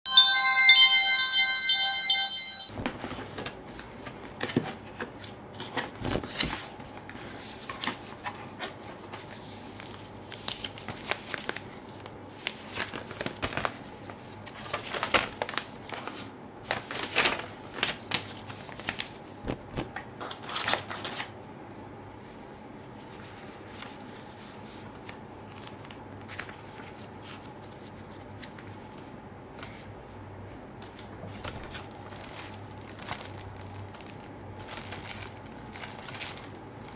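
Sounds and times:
paper and cardboard rustling: 0:30.9 - 0:36.9.

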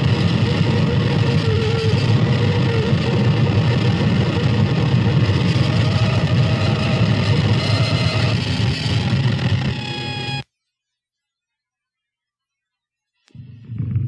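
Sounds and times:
harsh rumbling noise music: 0:00.0 - 0:10.4
steady ringing tone: 0:00.0 - 0:10.4.

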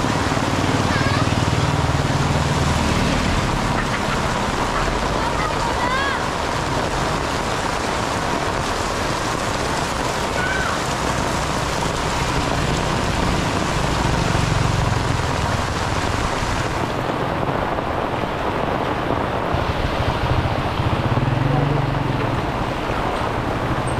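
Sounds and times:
heavy rain on pavement: 0:00.0 - 0:23.9
motorcycle engine rumbling past: 0:19.6 - 0:23.9.

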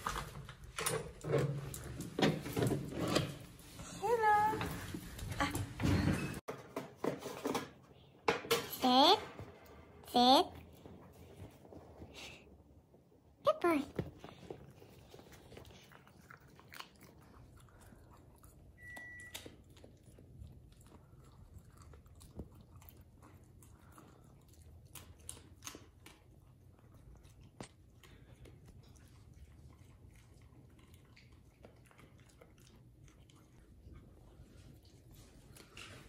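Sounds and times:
dog chewing food: 0:14.2 - 0:36.0.

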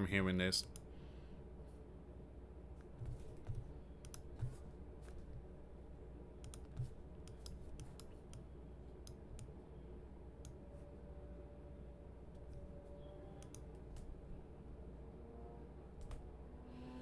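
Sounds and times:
mouse and keyboard clicks: 0:03.0 - 0:05.2, 0:06.4 - 0:08.4.

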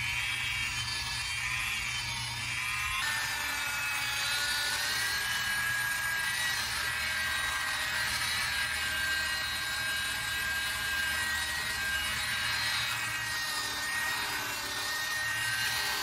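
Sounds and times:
electric polisher motor whine: 0:00.0 - 0:16.0.

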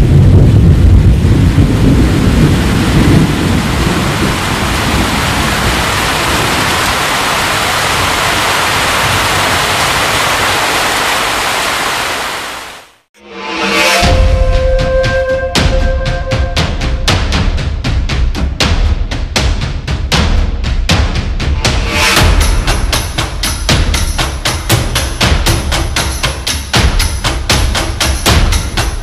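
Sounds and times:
thunder rumble: 0:00.0 - 0:10.6
heavy rain: 0:00.0 - 0:13.1.

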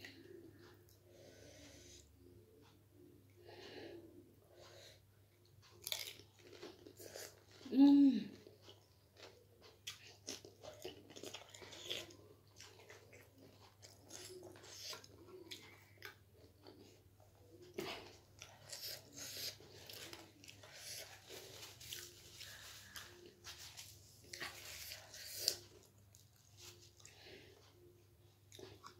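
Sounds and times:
person chewing crunchy snack: 0:05.6 - 0:07.7, 0:08.3 - 0:27.3.

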